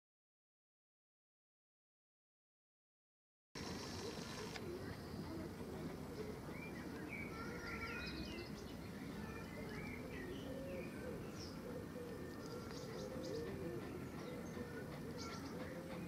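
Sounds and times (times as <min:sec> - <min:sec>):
dove cooing: 0:03.6 - 0:07.5, 0:09.8 - 0:16.0
small birds chirping: 0:03.6 - 0:16.0.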